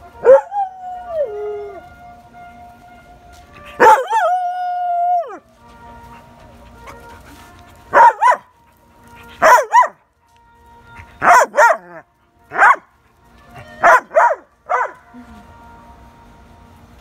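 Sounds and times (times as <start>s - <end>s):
puppy barking: 7.9s - 8.5s, 9.4s - 10.0s, 11.2s - 11.9s, 12.6s - 12.8s, 13.8s - 15.0s.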